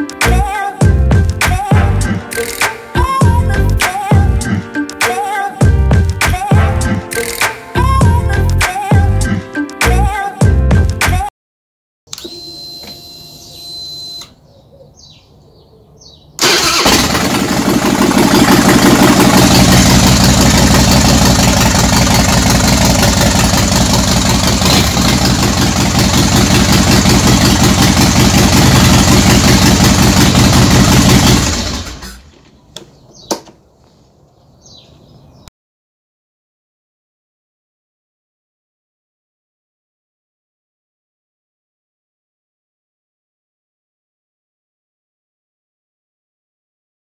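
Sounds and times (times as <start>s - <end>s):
motorcycle engine starting and idling: 16.4s - 32.4s.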